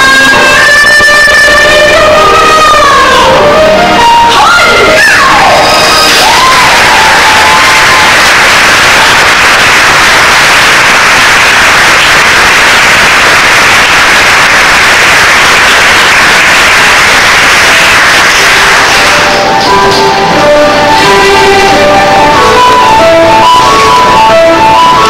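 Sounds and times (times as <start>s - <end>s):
audience applause: 4.4s - 19.5s.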